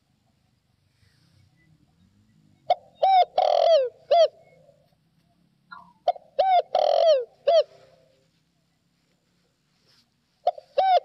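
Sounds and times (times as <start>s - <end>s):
dove cooing: 2.6s - 4.8s, 5.7s - 8.2s, 10.4s - 11.0s.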